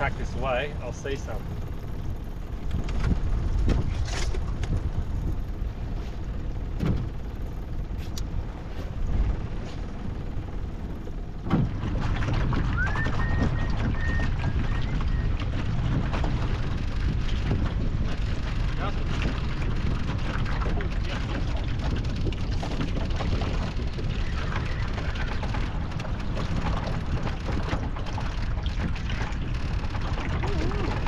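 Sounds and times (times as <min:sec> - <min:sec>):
water around a boat: 0:00.0 - 0:31.0
wind buffeting microphone: 0:00.0 - 0:31.0
short whistle: 0:12.8 - 0:15.3.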